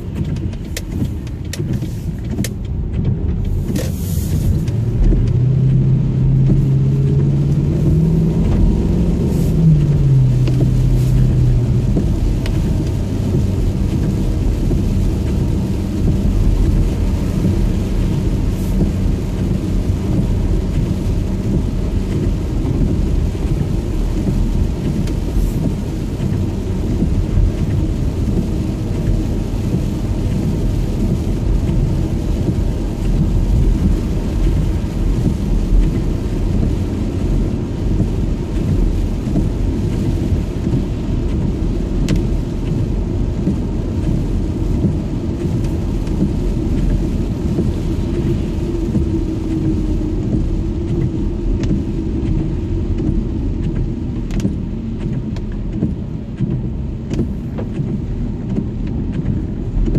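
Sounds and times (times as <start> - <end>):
rain on car: 0.0 - 59.9
road and tyre noise: 0.0 - 59.9.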